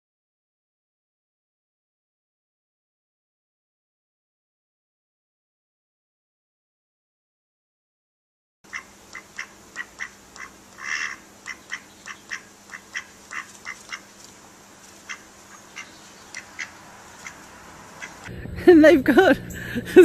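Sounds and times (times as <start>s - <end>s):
duck quacking: 8.7s - 14.1s, 15.0s - 18.3s.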